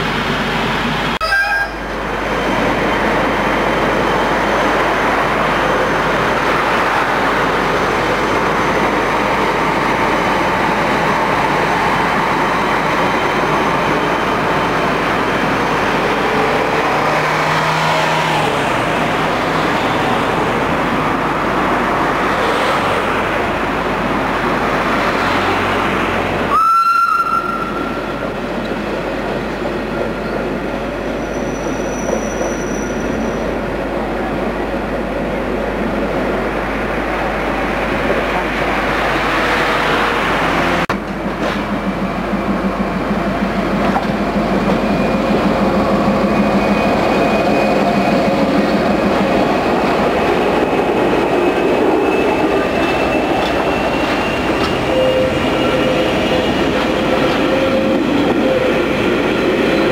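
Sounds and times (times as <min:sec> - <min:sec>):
electric train running past: 0:00.0 - 0:59.9
brief high squeal: 0:31.2 - 0:33.4.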